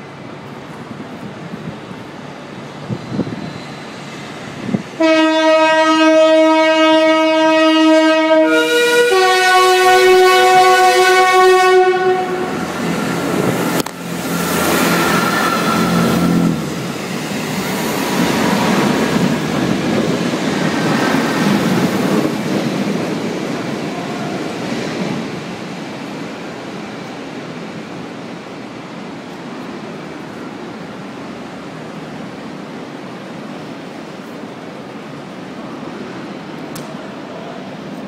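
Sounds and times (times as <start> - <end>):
train rumble and clatter: 0.0 - 38.0
steam whistle blast: 5.0 - 12.7.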